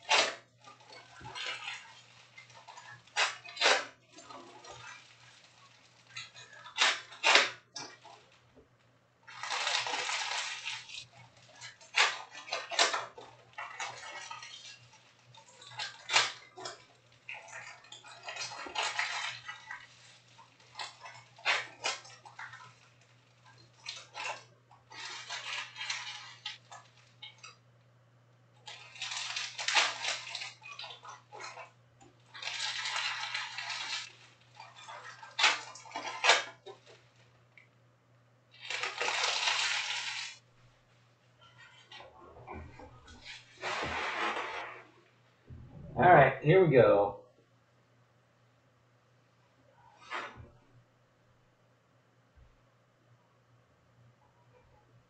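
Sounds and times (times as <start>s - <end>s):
foil packs tearing and crinkling: 0.0s - 8.4s, 9.3s - 27.4s, 28.6s - 31.7s, 32.3s - 37.2s, 38.5s - 40.4s.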